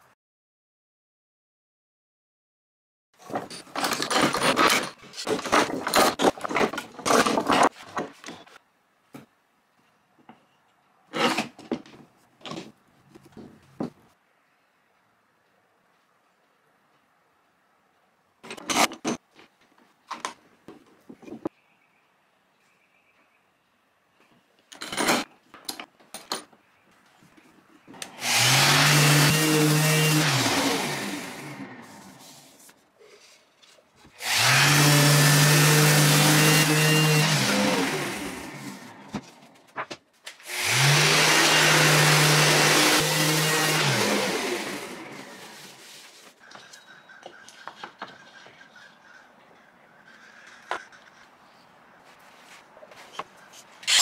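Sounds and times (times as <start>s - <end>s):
clamp jaws scraping along steel bars: 3.2s - 7.7s, 18.4s - 19.2s, 53.1s - 54.0s
knocks and scrapes of handling: 3.2s - 9.4s, 18.4s - 21.5s, 45.4s - 54.0s
orbital sander on wood: 28.2s - 32.1s, 34.2s - 38.9s, 40.5s - 45.8s.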